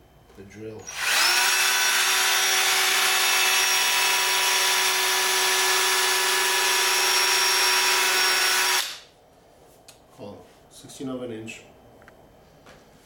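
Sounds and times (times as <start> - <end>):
cordless drill whining: 0.8 - 9.0.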